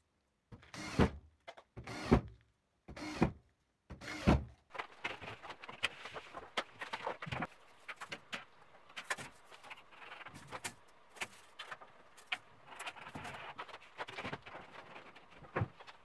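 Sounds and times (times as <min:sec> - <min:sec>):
plasterboard scraping: 0:09.0 - 0:16.0.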